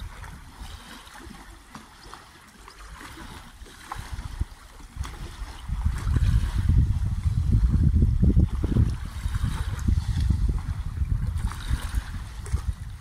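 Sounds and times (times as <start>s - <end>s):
wind buffeting microphone: 0.0s - 2.1s, 2.8s - 13.0s
small waves lapping: 0.0s - 13.0s.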